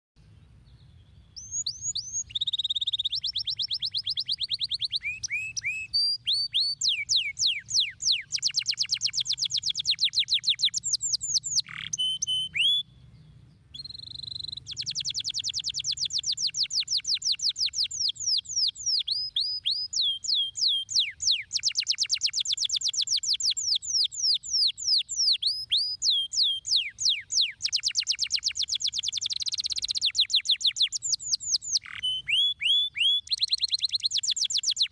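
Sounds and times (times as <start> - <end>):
canary singing trills: 0.5 - 34.9.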